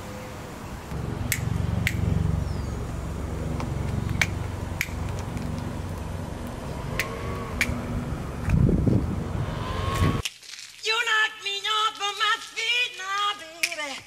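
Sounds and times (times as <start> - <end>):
low rumble: 0.9 - 10.2.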